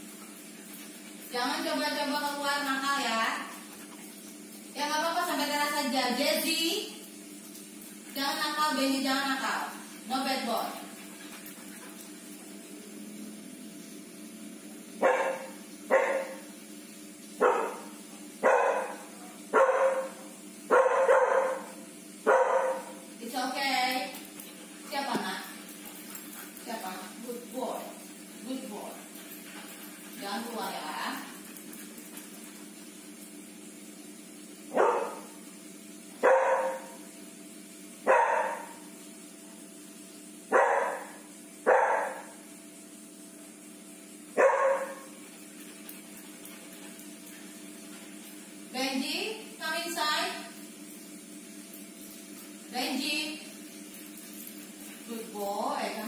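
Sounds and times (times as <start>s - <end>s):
dog barking: 15.0s - 16.4s, 17.4s - 23.0s, 34.7s - 35.3s, 36.2s - 37.0s, 38.1s - 38.8s, 40.5s - 42.3s, 44.4s - 45.1s.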